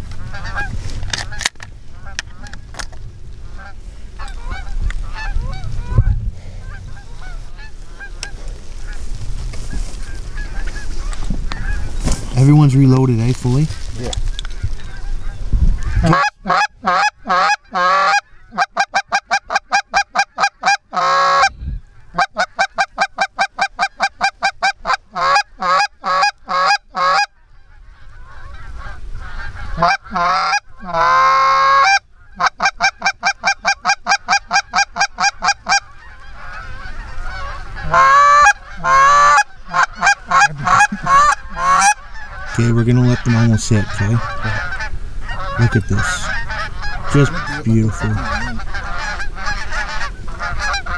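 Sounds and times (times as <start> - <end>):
goose call clucks and moans: 14.5 - 27.3, 27.9 - 50.9.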